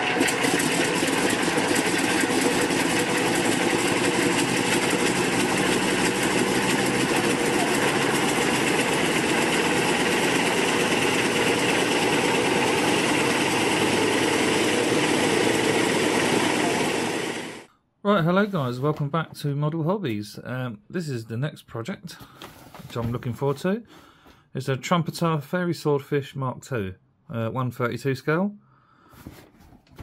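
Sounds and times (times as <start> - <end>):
engine droning: 0.0 - 17.7.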